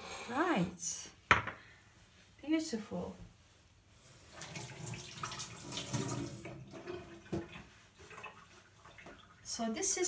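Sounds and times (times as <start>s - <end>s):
tap water running and splashing: 4.3s - 9.8s.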